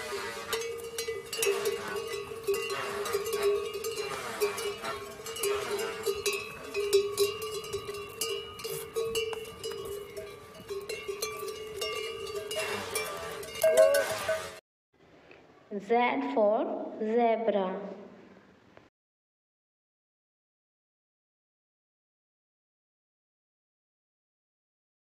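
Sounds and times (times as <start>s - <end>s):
yak bells ringing and clanking: 0.0s - 14.6s.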